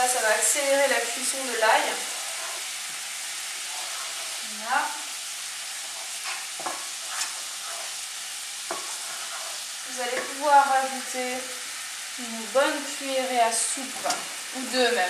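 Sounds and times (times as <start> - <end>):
spices sizzling in a frying pan: 0.0 - 15.0
wooden spatula stirring: 1.3 - 10.4, 13.9 - 14.3.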